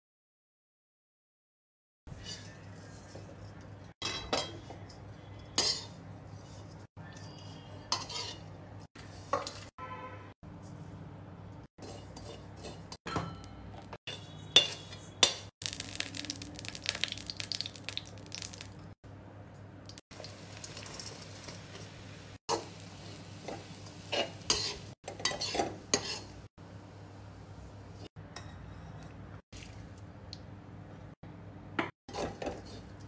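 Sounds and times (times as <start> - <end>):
utensils clinking on metal pan: 4.0 - 4.8, 11.8 - 15.5, 23.4 - 26.3.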